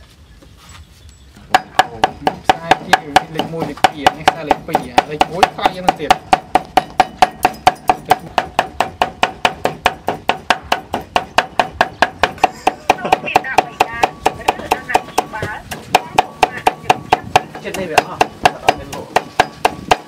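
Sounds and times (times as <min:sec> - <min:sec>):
cleaver chopping on wooden board: 0:01.5 - 0:20.0.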